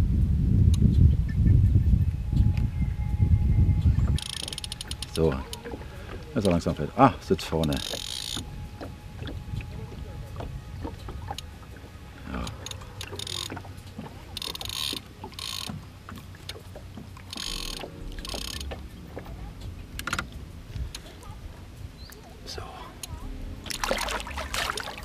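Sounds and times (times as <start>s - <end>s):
fishing reel clicking: 4.2s - 6.7s, 7.6s - 8.5s, 12.4s - 15.8s, 17.2s - 18.8s
fish splashing at surface: 23.7s - 25.0s.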